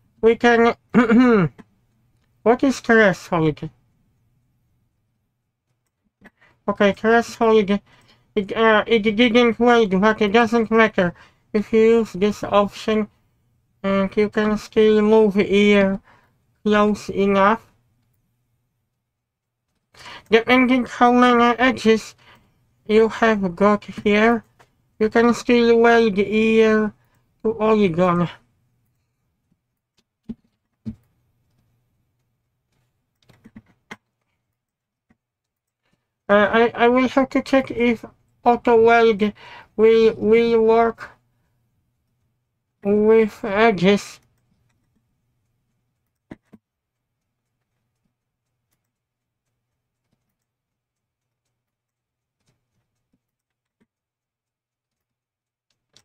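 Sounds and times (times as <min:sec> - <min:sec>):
mouse and keyboard clicks: 0:29.9 - 0:34.4, 0:45.9 - 0:46.6, 0:47.2 - 0:54.0.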